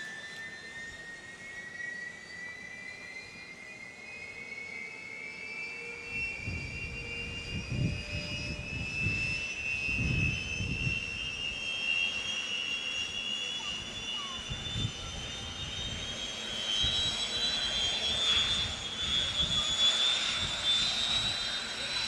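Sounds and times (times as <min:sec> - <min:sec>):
jet engines spooling up: 0:00.0 - 0:22.0
wind rumbling on microphone: 0:06.4 - 0:11.3, 0:18.1 - 0:21.4.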